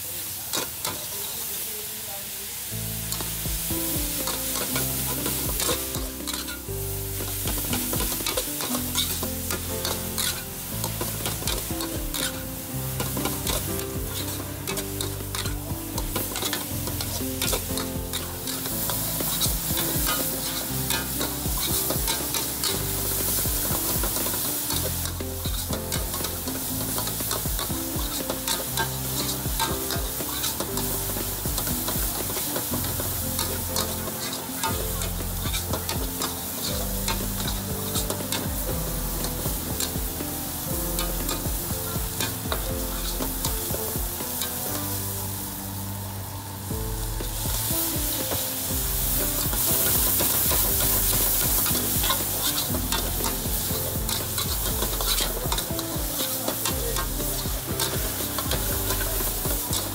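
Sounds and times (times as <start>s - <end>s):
food sizzling: 0.0s - 59.9s
ladle clicking on pan: 0.5s - 1.1s, 4.1s - 45.0s, 48.1s - 59.9s
metal ladle scraping a wok: 4.1s - 27.4s, 28.1s - 38.4s, 49.2s - 55.8s.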